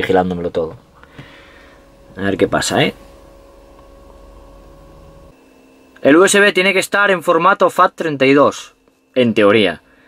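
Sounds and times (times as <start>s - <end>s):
car cabin hum and hiss: 0.0s - 5.3s
faint thin whine: 0.0s - 10.0s.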